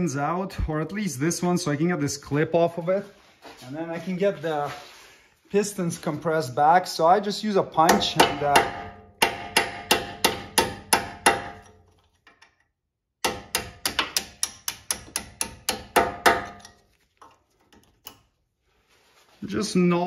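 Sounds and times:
hammer striking metal punch: 0:07.8 - 0:11.8, 0:13.2 - 0:16.7.

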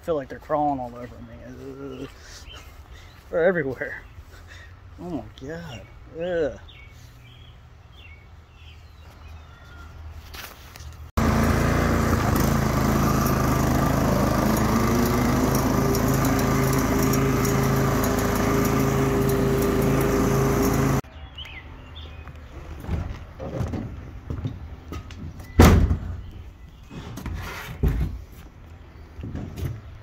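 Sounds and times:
lawn mower engine running: 0:11.2 - 0:21.0.

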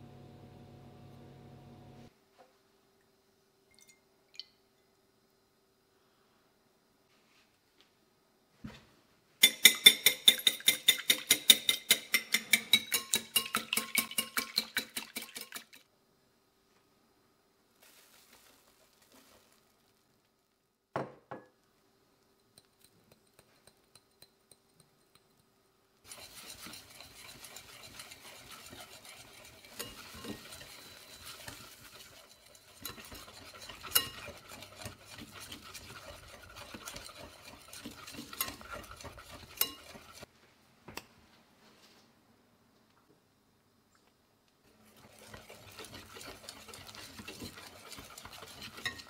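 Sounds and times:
whisk wires clinking on bowl: 0:09.4 - 0:15.8, 0:26.1 - 0:40.3, 0:45.0 - 0:49.0
whisk scraping in bowl: 0:26.0 - 0:40.3, 0:44.8 - 0:49.0.

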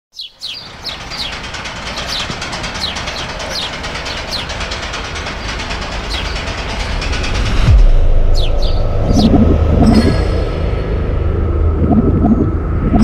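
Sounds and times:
bird chirping: 0:00.1 - 0:04.5, 0:08.4 - 0:10.3.

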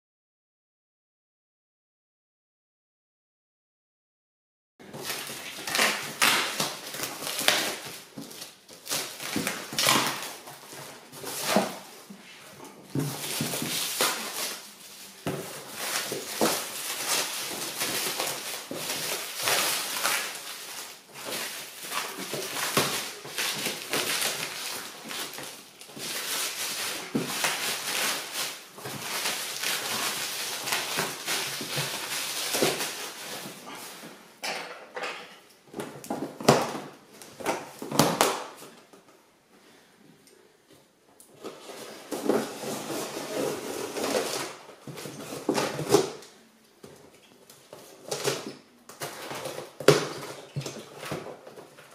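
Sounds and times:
plastic wrap crinkling: 0:04.9 - 0:34.2.

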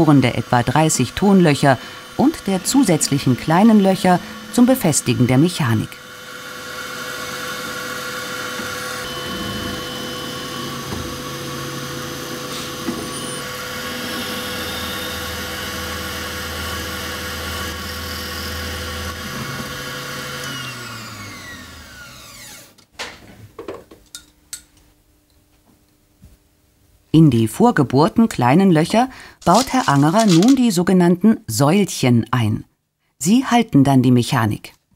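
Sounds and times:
drilling machine boring wood: 0:00.0 - 0:22.8.

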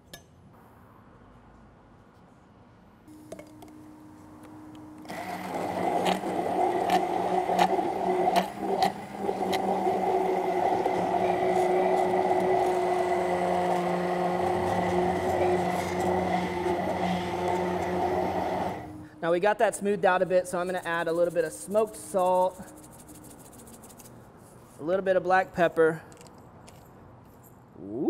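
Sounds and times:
immersion blender whirring: 0:04.4 - 0:19.1.

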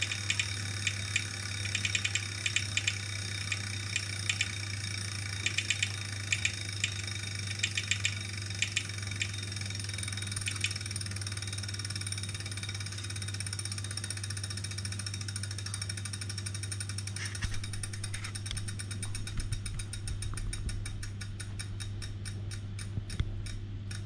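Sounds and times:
sharp clicks: 0:00.0 - 0:09.6, 0:10.3 - 0:10.9.

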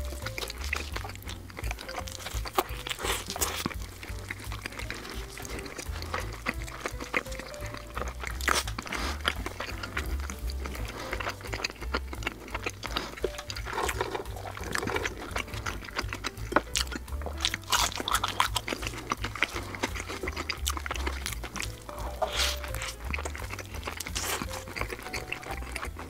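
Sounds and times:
background music: 0:00.0 - 0:26.0
wet smacking and chewing: 0:00.0 - 0:26.0.

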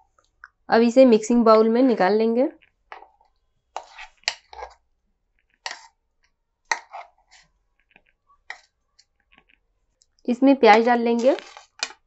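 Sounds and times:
batter clicks and scrapes: 0:03.8 - 0:04.8, 0:05.5 - 0:06.0, 0:10.6 - 0:12.0.

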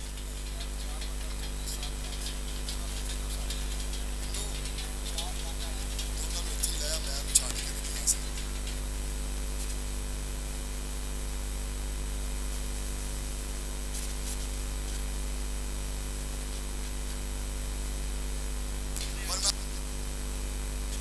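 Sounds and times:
electrical hum and hiss: 0:00.0 - 0:21.0.

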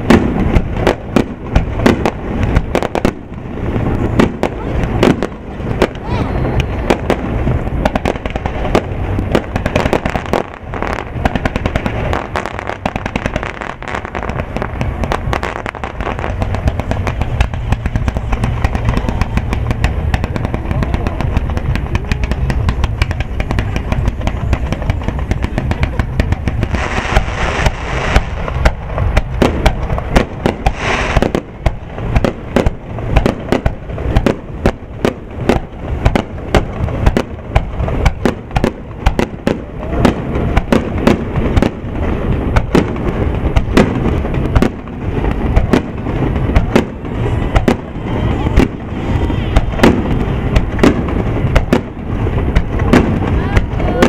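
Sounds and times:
fireworks bangs and crackling: 0:00.0 - 0:54.0
low rumble: 0:00.0 - 0:54.0
rising hiss: 0:30.6 - 0:31.2.

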